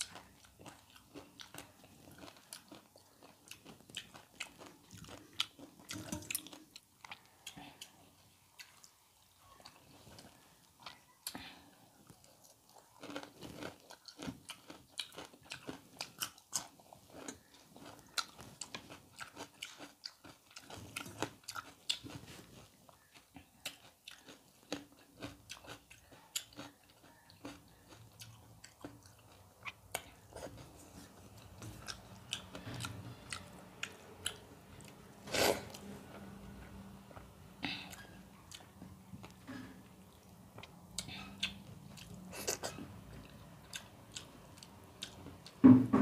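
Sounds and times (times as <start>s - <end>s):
chewing crunchy food: 0.0s - 45.6s
loud crunch or slurp: 35.2s - 35.8s.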